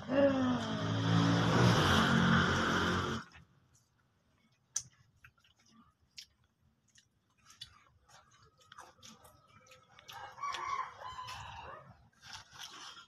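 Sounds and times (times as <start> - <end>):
crunching snacks: 4.5 - 13.0
rooster crowing: 10.1 - 11.9.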